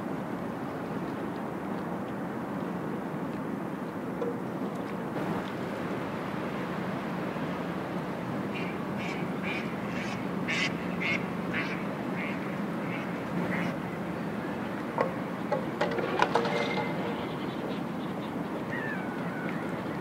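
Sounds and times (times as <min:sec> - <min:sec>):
water: 0:00.0 - 0:20.0
sharp clicks and knocks: 0:15.0 - 0:17.2.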